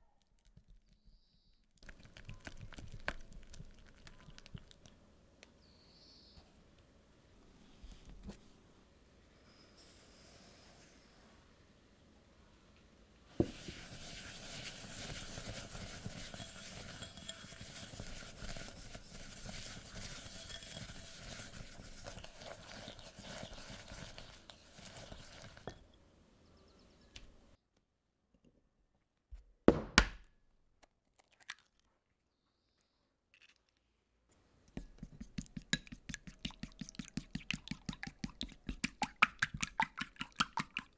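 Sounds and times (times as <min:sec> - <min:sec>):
chopsticks beating egg in bowl: 0:01.8 - 0:04.9, 0:13.4 - 0:25.7, 0:34.8 - 0:40.9
whisk scraping in glass bowl: 0:13.4 - 0:25.8.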